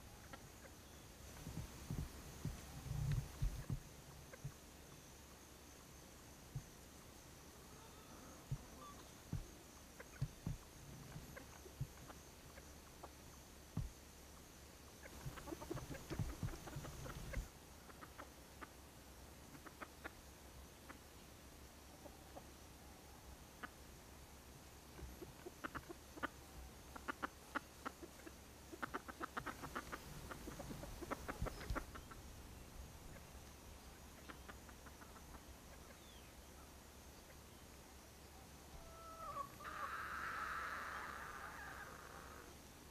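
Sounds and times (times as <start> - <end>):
chickens clucking: 0.0 - 4.7, 7.7 - 18.8, 19.4 - 21.2, 23.4 - 23.9, 24.9 - 36.3, 38.7 - 42.9.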